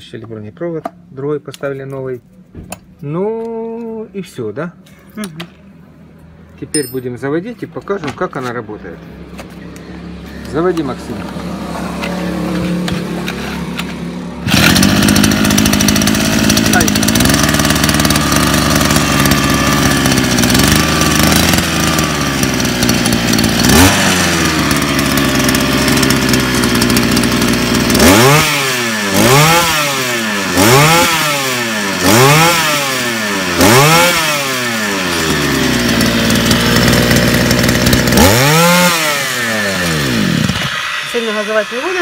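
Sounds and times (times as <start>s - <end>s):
small two-stroke engine revving: 10.0s - 42.0s.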